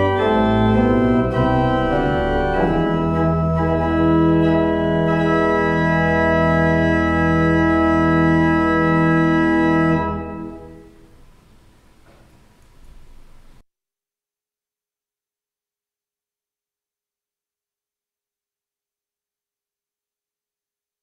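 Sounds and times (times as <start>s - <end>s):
pipe organ chords: 0.0s - 11.4s.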